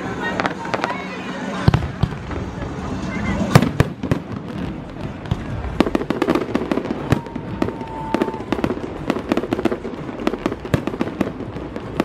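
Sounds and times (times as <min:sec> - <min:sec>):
fireworks bangs and crackles: 0:00.0 - 0:12.0
firework whistle: 0:06.0 - 0:10.4.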